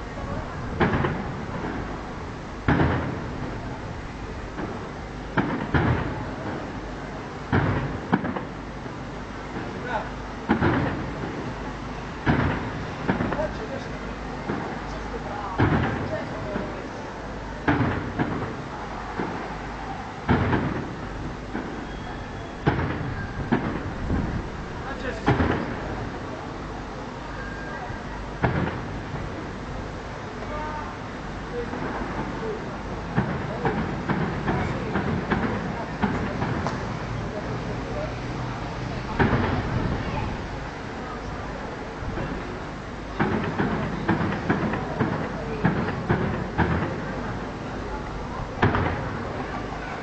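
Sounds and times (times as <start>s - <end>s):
rumble after booms: 0.0s - 50.0s
firework shells booming: 0.4s - 26.4s, 28.2s - 30.2s, 30.8s - 49.9s
faint firework bang: 0.7s - 2.0s, 2.6s - 3.6s, 4.5s - 6.8s, 7.5s - 8.6s, 10.5s - 11.5s, 12.2s - 13.8s, 14.4s - 14.9s, 15.6s - 16.8s, 17.6s - 24.4s, 25.2s - 26.0s, 28.4s - 29.2s, 31.5s - 37.2s, 39.0s - 40.2s, 43.2s - 47.4s, 48.0s - 49.7s.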